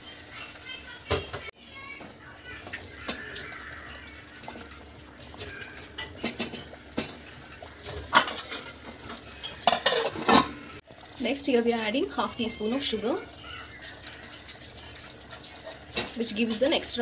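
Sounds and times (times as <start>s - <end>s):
wooden spatula stirring in pot: 0.0s - 10.3s.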